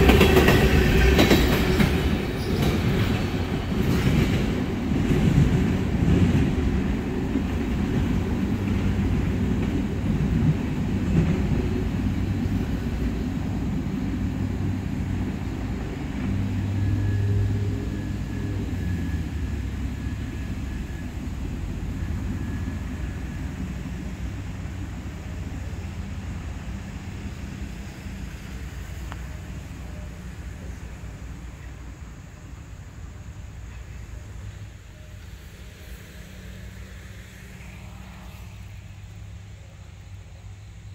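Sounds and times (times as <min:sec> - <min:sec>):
freight train rumbling on rails: 0:00.0 - 0:40.9.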